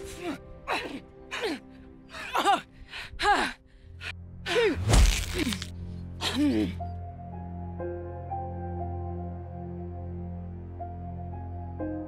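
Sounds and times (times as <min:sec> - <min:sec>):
film score sustained notes: 0:05.4 - 0:12.0.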